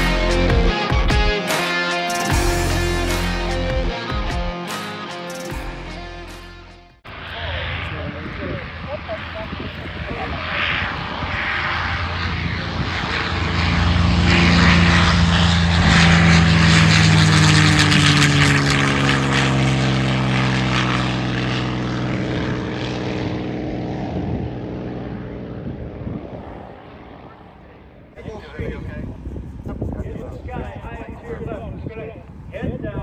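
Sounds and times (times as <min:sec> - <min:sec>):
propeller plane passing: 0:00.0 - 0:32.9.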